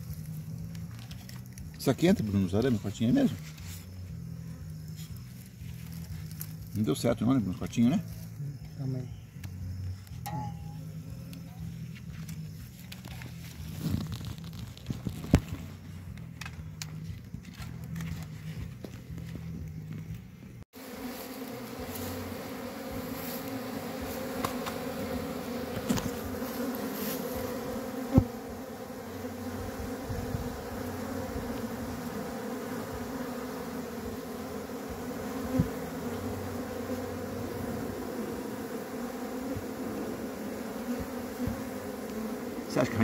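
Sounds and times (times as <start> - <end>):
bees buzzing: 20.8 - 43.0.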